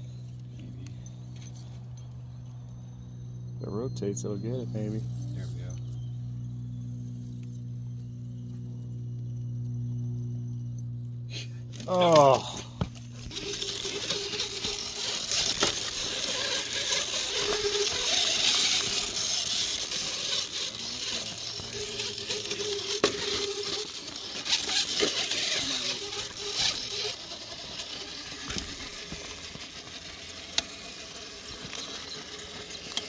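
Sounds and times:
small electric motor whining: 0:00.0 - 0:33.0
tyres scrabbling on rock: 0:11.8 - 0:33.0.

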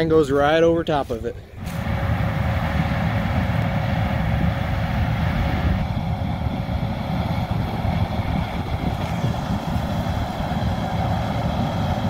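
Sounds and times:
combine harvester running: 0:00.0 - 0:12.0.

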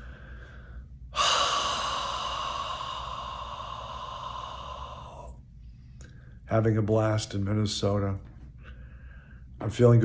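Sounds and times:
man exhaling breathily: 0:00.0 - 0:05.4.

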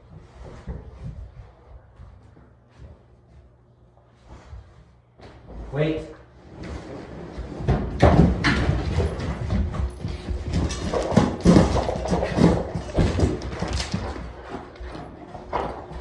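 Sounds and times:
dog claws clattering on wood floor: 0:08.1 - 0:16.0.

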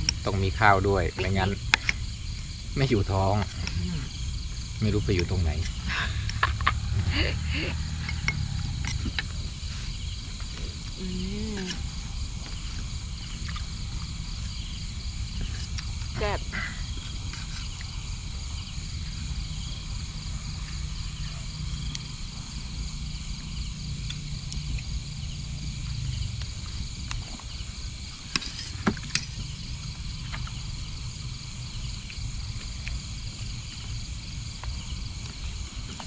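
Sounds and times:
low rumble: 0:00.0 - 0:17.0
insects and frogs chorus: 0:00.0 - 0:36.0.

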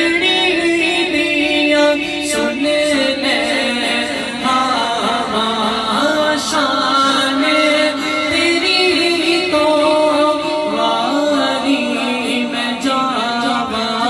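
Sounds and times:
man singing: 0:00.0 - 0:14.0.

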